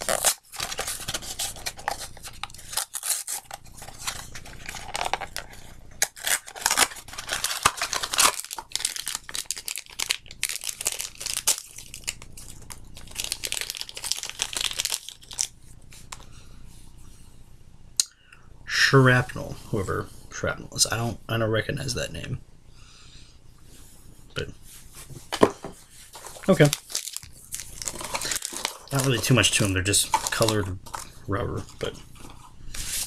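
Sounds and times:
packaging tearing and crinkling: 0:00.0 - 0:15.5, 0:26.2 - 0:31.8.

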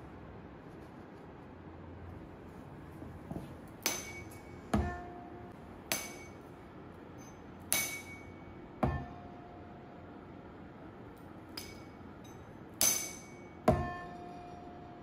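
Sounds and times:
tuning fork struck and ringing: 0:03.8 - 0:10.3, 0:11.5 - 0:15.0.

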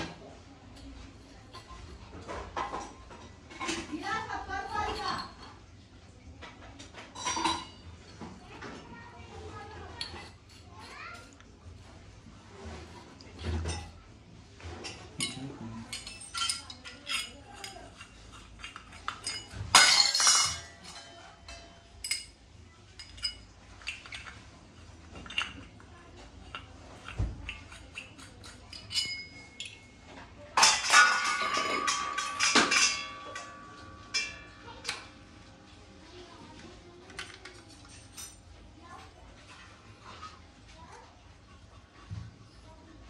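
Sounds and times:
metal clatter: 0:14.6 - 0:22.4, 0:26.4 - 0:35.2
brass utensils clinking: 0:14.8 - 0:22.4, 0:26.4 - 0:30.0, 0:30.6 - 0:35.4
metal ringing: 0:30.6 - 0:35.2.

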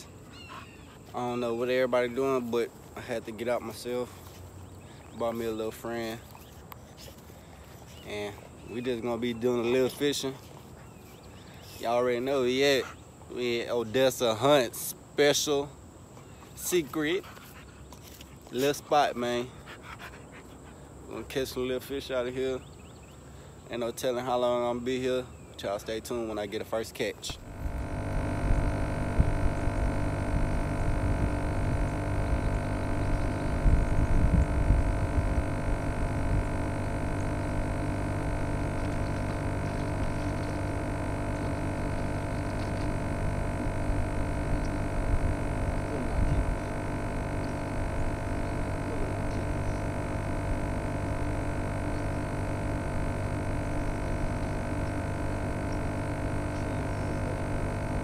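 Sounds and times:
steady tonal hum: 0:27.0 - 0:58.0
low rumbling noise: 0:27.4 - 0:58.0.

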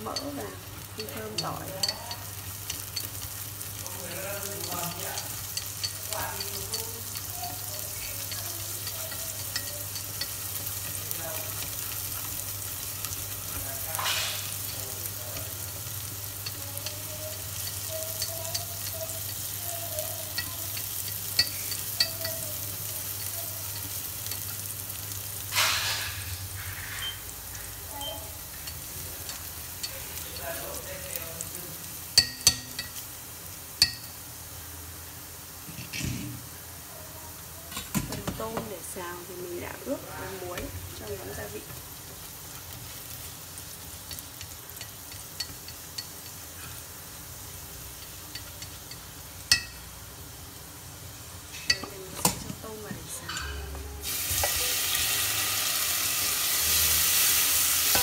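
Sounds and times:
garlic sizzling in hot fat: 0:00.0 - 0:58.0
chopsticks clicking against pot: 0:04.6 - 0:13.6.

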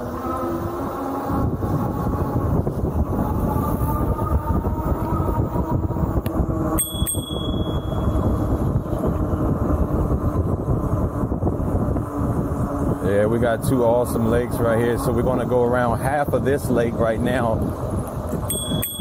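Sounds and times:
wind and road rumble: 0:00.0 - 0:19.0
bicycle bell ringing: 0:06.7 - 0:08.4, 0:18.4 - 0:19.0.

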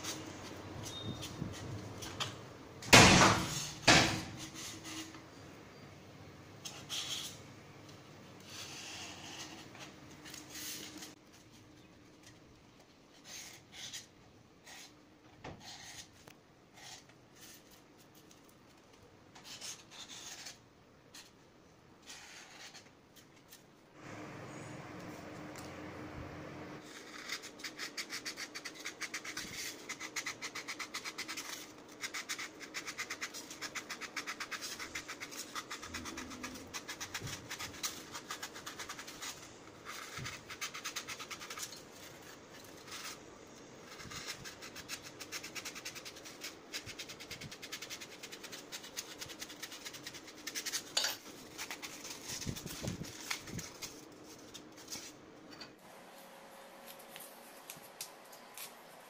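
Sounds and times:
steady background hum: 0:00.0 - 0:59.0
marker pen scratching on foam: 0:08.4 - 0:11.2, 0:13.1 - 0:17.8, 0:19.4 - 0:21.3, 0:22.0 - 0:22.9, 0:26.8 - 0:43.3.

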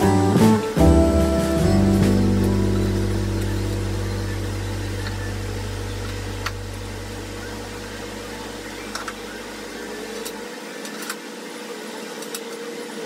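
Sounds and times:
low steady hum: 0:00.0 - 0:10.4.

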